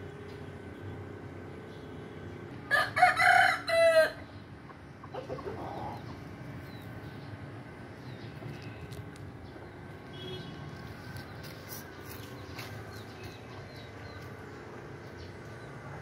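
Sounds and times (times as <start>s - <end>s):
rooster crowing: 2.7s - 4.3s.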